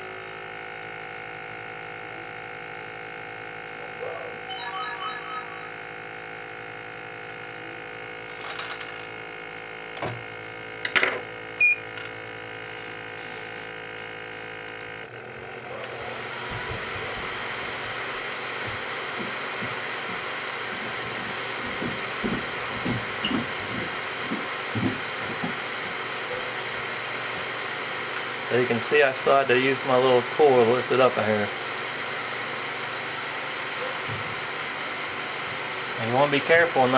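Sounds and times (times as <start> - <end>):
machine humming: 2.4 - 28.9.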